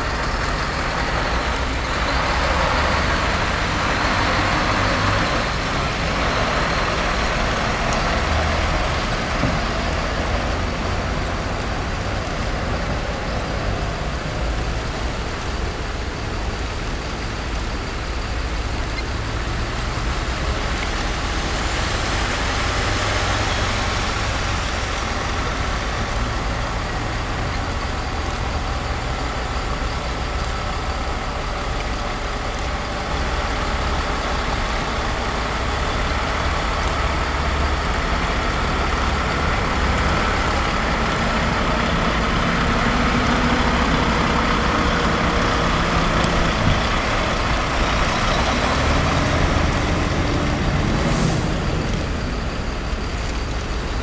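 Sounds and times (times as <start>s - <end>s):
lorry diesel engines: 0.0s - 54.0s
tyres hissing on wet road: 0.0s - 54.0s.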